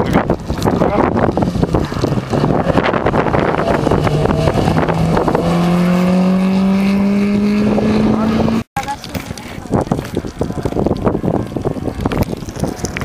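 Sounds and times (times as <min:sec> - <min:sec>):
wind buffeting microphone: 0:00.0 - 0:13.0
rally car engine accelerating: 0:01.2 - 0:08.6.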